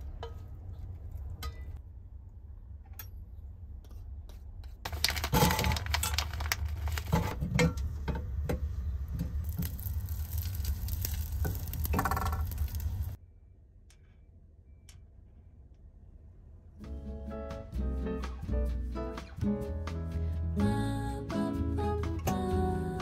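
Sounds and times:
objects clattering: 4.9s - 9.9s, 11.2s - 13.1s.

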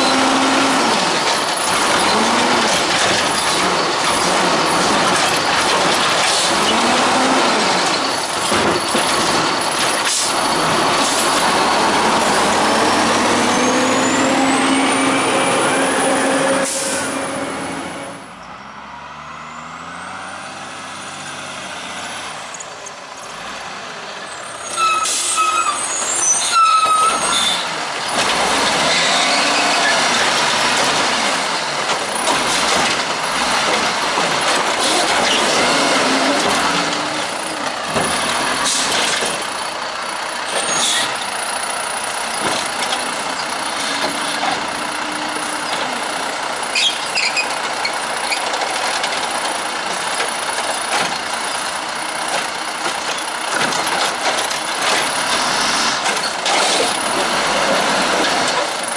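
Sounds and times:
hydraulics whirring: 0.0s - 18.6s, 24.4s - 58.9s
brake squeal: 0.0s - 20.6s, 24.2s - 58.9s
diesel engine running: 0.0s - 26.1s, 27.2s - 58.9s
air brakes hissing: 16.5s - 18.1s, 24.9s - 27.5s.

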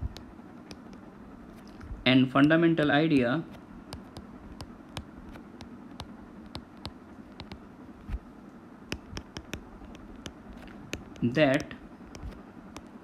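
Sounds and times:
faint steady hiss: 0.0s - 13.0s
stylus tapping on glass screen: 3.9s - 7.6s, 8.9s - 12.9s.

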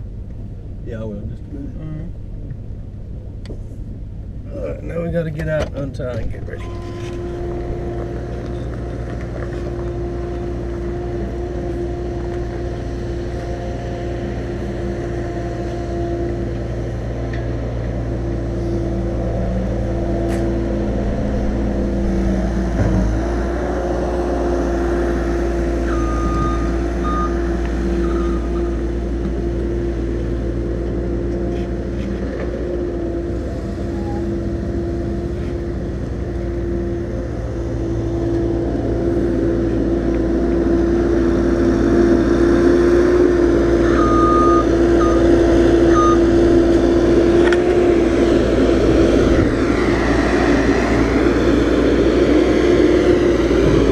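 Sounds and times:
truck engine idling: 0.0s - 53.9s
short high beeps: 6.6s - 7.1s, 45.9s - 46.2s.

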